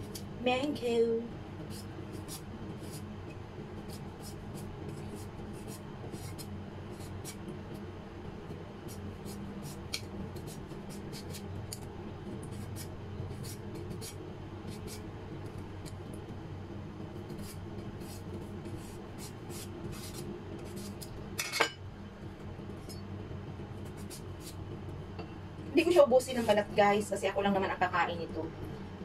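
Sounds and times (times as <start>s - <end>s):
knife scraping fruit skin: 3.9s - 7.4s, 8.9s - 11.8s, 12.5s - 15.0s, 17.3s - 21.1s.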